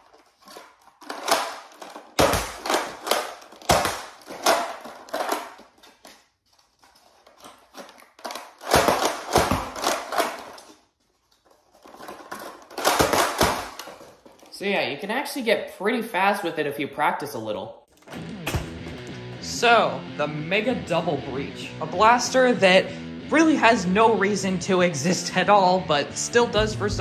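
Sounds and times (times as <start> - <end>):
toy blaster clacks and snaps: 1.0 - 5.7.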